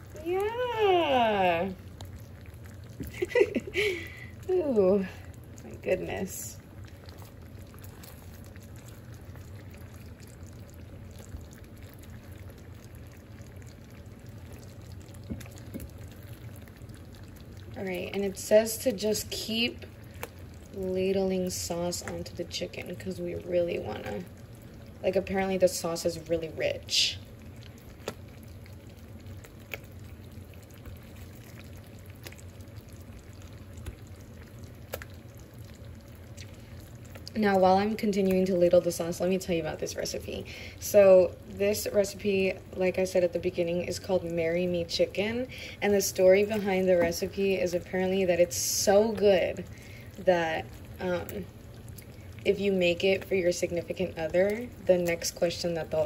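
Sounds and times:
sauce simmering in frying pan: 0.0s - 56.0s.

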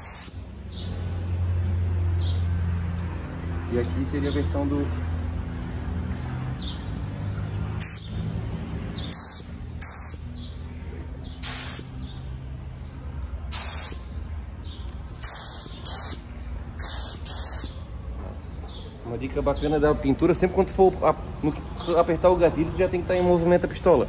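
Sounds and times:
spray gun hissing bursts: 0.0s - 0.4s, 9.1s - 10.2s, 11.4s - 11.9s, 13.5s - 14.0s, 15.2s - 16.2s, 16.8s - 17.8s.

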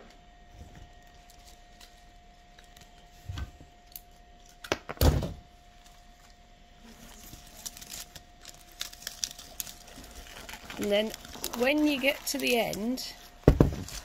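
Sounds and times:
foliage crackling rustle: 6.8s - 13.2s.

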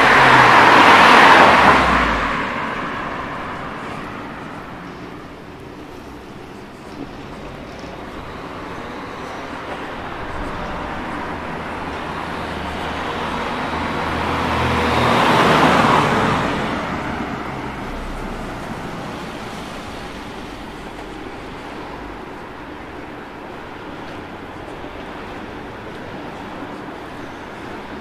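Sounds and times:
car passing close by: 0.0s - 5.0s, 7.8s - 22.0s
background traffic: 0.0s - 28.0s.

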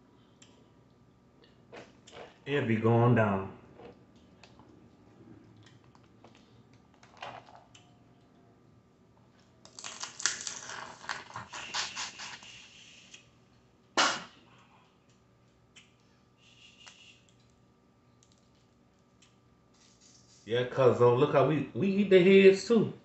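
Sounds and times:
wet sucking and chewing: 1.4s - 2.4s, 11.3s - 13.2s
crawfish shell cracking: 9.6s - 12.1s.

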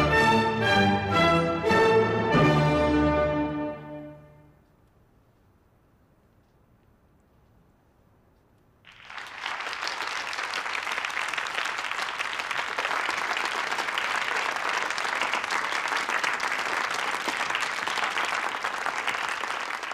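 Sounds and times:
audience applauding: 8.9s - 19.9s.

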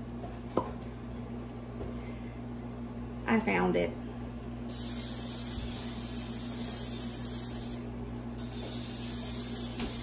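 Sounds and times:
aerosol spray hissing: 4.7s - 7.8s, 8.4s - 10.0s.

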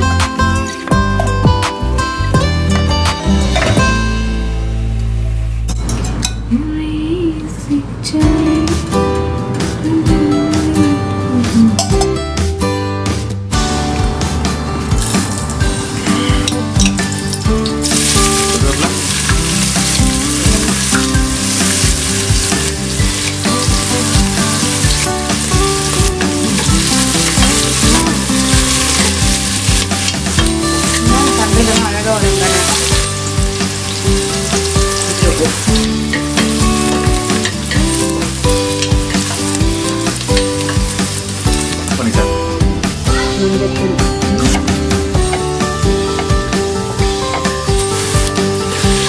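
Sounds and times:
vegetables sizzling in hot oil: 15.9s - 43.2s, 44.9s - 49.0s.

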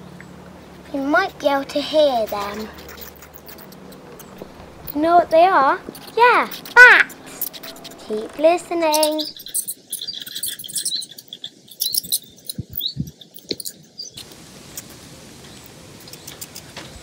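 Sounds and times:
bats chittering and squeaking: 0.9s - 14.2s
faint hiss: 14.2s - 17.0s.

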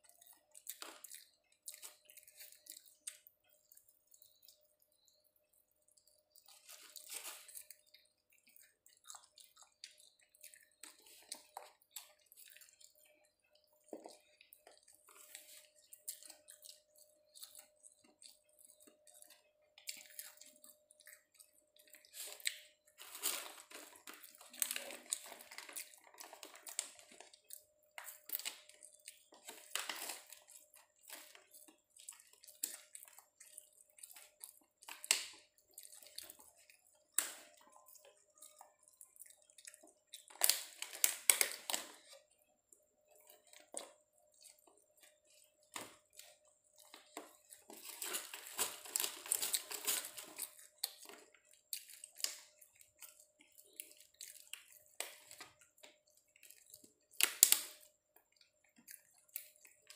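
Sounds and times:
person chewing: 0.0s - 59.9s
plastic food container crackling: 43.1s - 51.3s.

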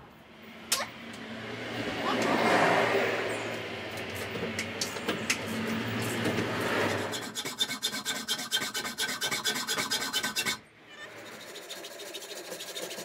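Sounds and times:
saw blade rasping through metal: 6.6s - 13.0s.

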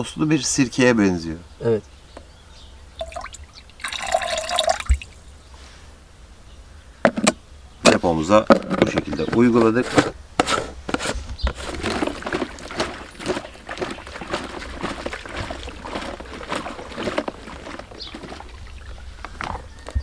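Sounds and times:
water sloshing in a tank: 3.0s - 5.3s, 11.6s - 19.8s.

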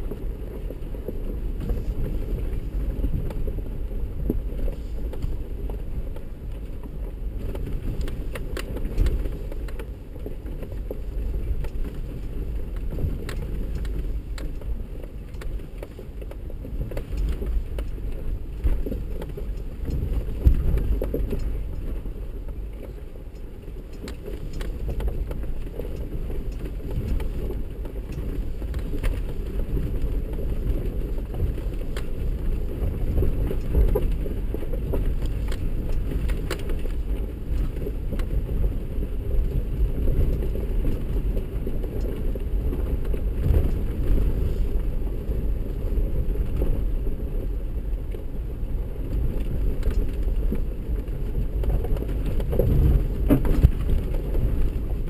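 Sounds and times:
engine and tyres rumbling on rock: 0.0s - 55.0s
vehicle knocks and rattles: 49.0s - 55.0s.

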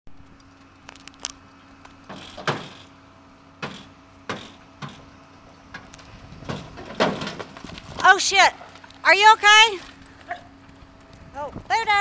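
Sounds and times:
hooves thumping on metal: 0.2s - 3.0s, 3.6s - 12.0s.

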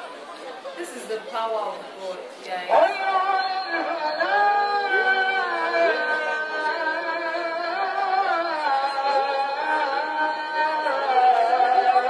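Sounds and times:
man chanting call to prayer: 2.7s - 12.0s.

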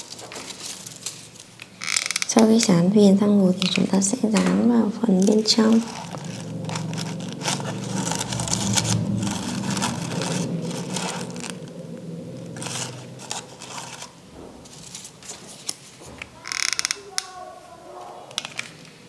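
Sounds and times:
paper rustling and scraping: 0.0s - 1.6s, 12.5s - 16.2s
low hum: 2.7s - 16.0s.

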